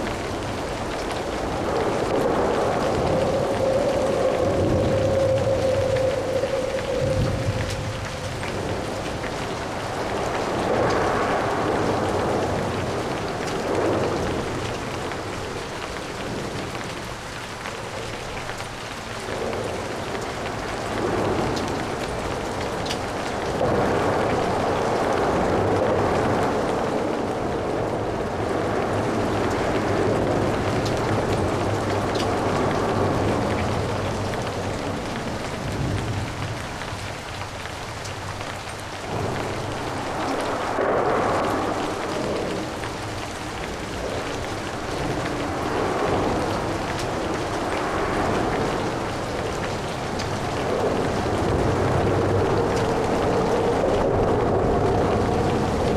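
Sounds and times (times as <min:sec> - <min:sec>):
steady rain patter: 0:00.0 - 0:55.9.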